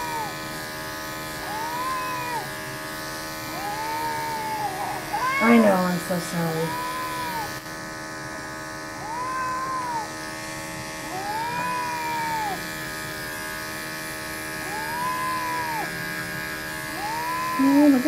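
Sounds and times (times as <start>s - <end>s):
cat meowing: 0.0s - 0.5s, 1.4s - 2.7s, 3.4s - 7.6s, 9.0s - 10.2s, 11.0s - 12.8s, 14.6s - 16.0s, 16.9s - 18.0s
electric pet clippers buzzing: 0.0s - 18.0s.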